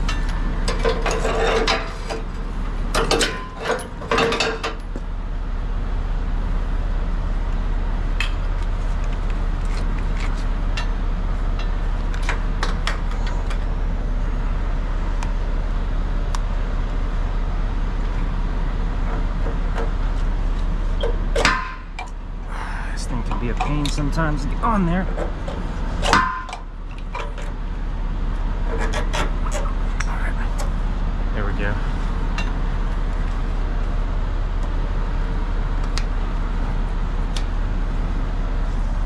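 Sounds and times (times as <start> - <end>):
metal hitch parts clicking: 0.0 - 5.0, 23.2 - 27.6
diesel truck engine idling: 0.0 - 39.0.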